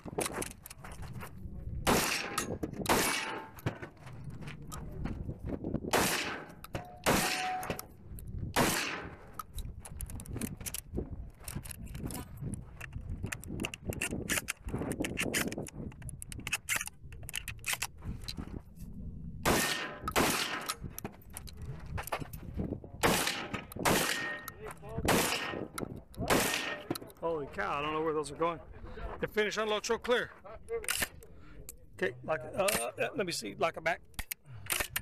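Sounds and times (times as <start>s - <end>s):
shotgun shots: 1.8s - 3.8s, 5.9s - 7.8s, 8.6s - 9.3s, 19.4s - 20.8s, 23.0s - 27.0s
shotgun reloading clicks: 34.1s - 35.0s.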